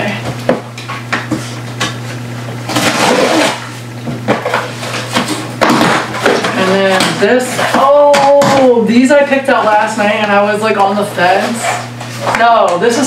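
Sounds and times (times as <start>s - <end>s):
cardboard scraping rustle: 2.7s - 3.8s.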